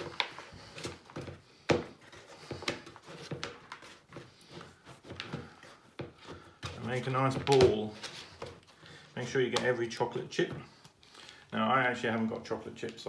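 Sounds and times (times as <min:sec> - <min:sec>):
hands kneading dough in plastic bowl: 0:00.0 - 0:13.0.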